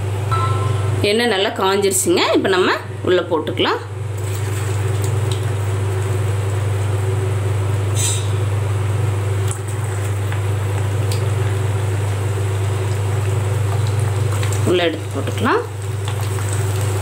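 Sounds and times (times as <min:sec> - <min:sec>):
steady low hum: 0:00.0 - 0:13.7
dough frying in oil: 0:03.6 - 0:17.0.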